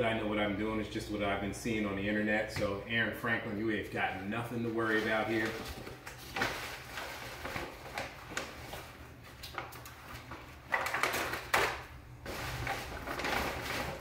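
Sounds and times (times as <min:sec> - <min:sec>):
paper bag rustling and crinkling: 0:04.4 - 0:14.0.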